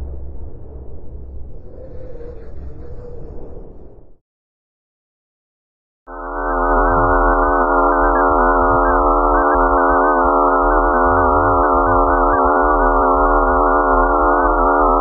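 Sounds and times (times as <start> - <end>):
low hum: 0.0 - 4.2, 6.1 - 15.0
eerie electronic drone: 6.1 - 15.0.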